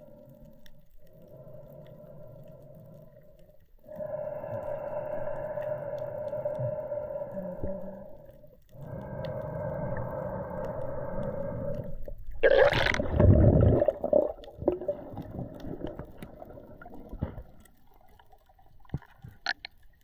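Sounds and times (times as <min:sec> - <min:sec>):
faint underwater clicks: 0:00.0 - 0:20.0
water rushing and gurgling: 0:09.0 - 0:19.7.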